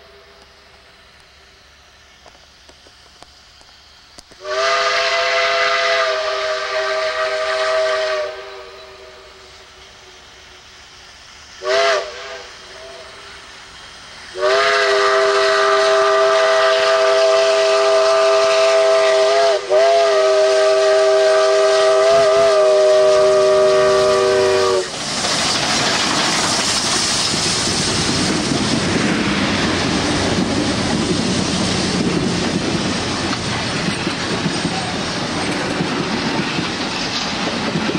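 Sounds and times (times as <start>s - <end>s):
train passing with rushing noise: 0.0s - 37.9s
steam whistle blasts: 4.2s - 10.5s, 11.6s - 13.4s, 14.3s - 25.0s.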